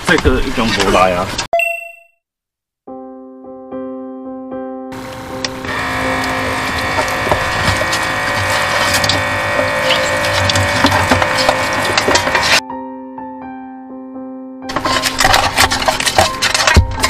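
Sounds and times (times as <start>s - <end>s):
toothbrush scrubbing crab shells: 5.7s - 12.6s, 14.7s - 17.0s
tap running into metal sink: 5.9s - 12.6s.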